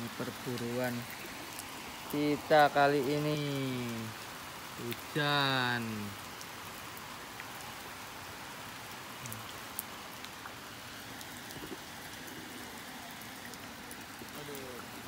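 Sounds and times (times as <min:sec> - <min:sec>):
steady rain: 0:00.0 - 0:15.0
raindrop ticks: 0:00.3 - 0:06.6, 0:08.8 - 0:12.4.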